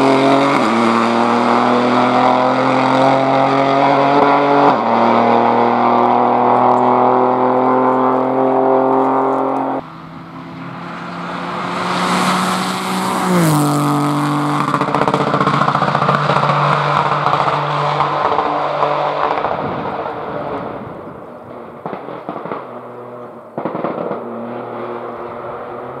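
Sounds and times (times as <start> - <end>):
rally car engine pulling away: 0.0 - 26.0
exhaust crackling and popping: 14.0 - 24.8.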